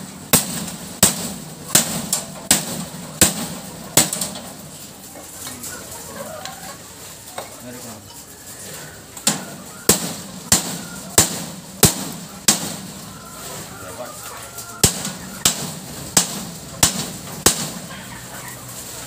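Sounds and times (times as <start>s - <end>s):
hammer striking metal: 0.3s - 4.5s, 9.3s - 12.9s, 14.8s - 17.9s.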